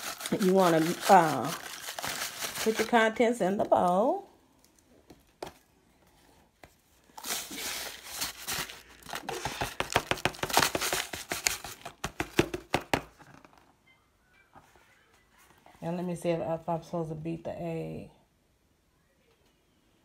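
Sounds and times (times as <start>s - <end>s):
paper pouch crinkling: 0.0s - 3.9s, 7.1s - 12.2s.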